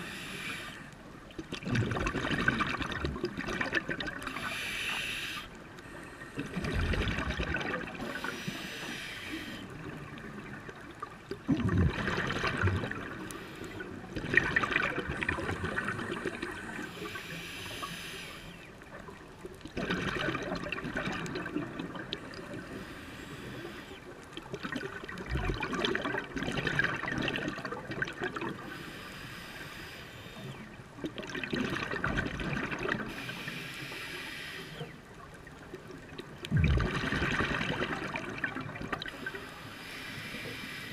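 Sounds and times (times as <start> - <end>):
scuba inhalation: 0.0 - 1.0, 4.2 - 10.0, 12.9 - 14.1, 15.0 - 18.8, 22.3 - 24.1, 28.5 - 30.7, 32.9 - 35.0, 39.0 - 40.9
scuba exhale bubbling: 0.0 - 18.5, 19.7 - 35.0, 36.2 - 40.9.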